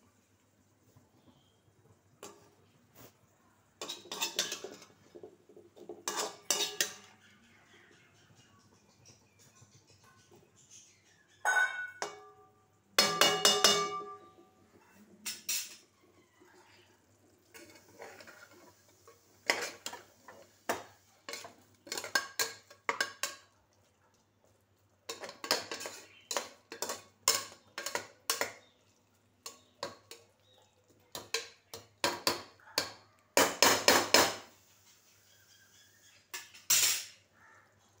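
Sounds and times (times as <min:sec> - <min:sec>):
metal utensils clanking on pots: 0:02.2 - 0:02.6, 0:03.8 - 0:07.4, 0:11.4 - 0:23.6, 0:24.9 - 0:34.5, 0:36.2 - 0:37.3
ringing metallic clang: 0:11.5 - 0:14.4.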